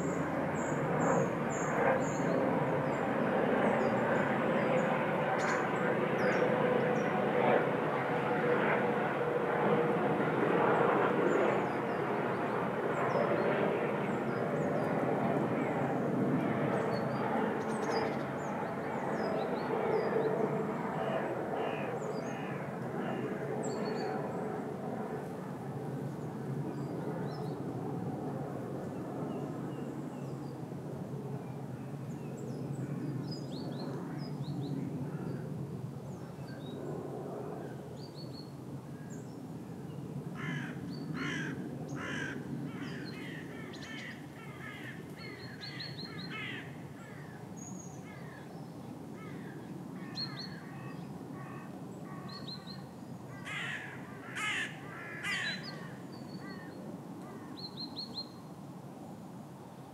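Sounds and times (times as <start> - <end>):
crows cawing: 40.4 - 47.4, 49.2 - 50.8, 53.3 - 57.5.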